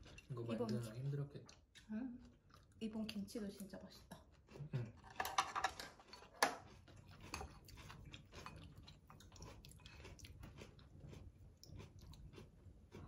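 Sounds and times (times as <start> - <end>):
chewing mouth clicks: 6.1 - 13.0.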